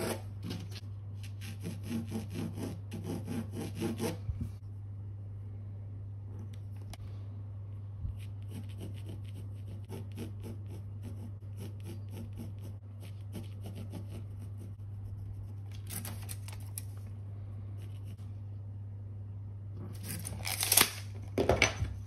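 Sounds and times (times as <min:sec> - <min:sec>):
pencil scratching on canvas: 0:00.0 - 0:04.2, 0:08.2 - 0:15.7
steady low hum: 0:00.0 - 0:22.0.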